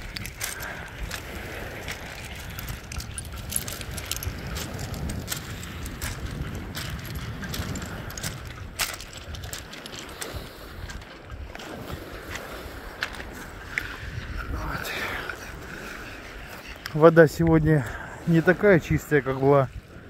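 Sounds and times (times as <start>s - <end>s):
footsteps crunching on shingle: 0.0s - 13.5s
wind buffeting microphone: 0.0s - 20.0s.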